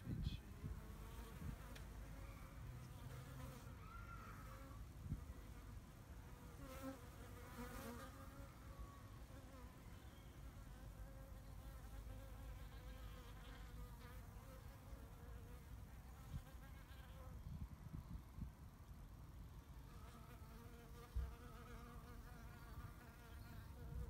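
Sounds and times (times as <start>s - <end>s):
bees buzzing faintly: 0.0s - 24.0s.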